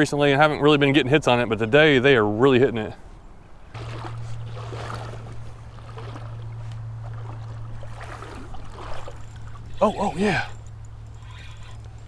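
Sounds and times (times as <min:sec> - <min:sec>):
steady low hum: 0:02.8 - 0:12.0
creek water running: 0:03.6 - 0:12.0.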